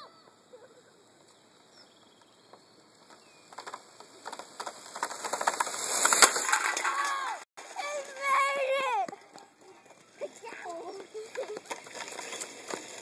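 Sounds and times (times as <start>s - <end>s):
tyres crackling and hissing on asphalt: 0.7s - 13.0s
toy car running: 3.6s - 8.5s, 10.4s - 13.0s.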